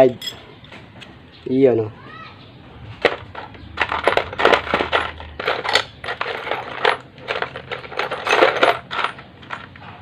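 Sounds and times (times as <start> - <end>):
metal parts clinking in plastic basin: 3.0 - 10.0.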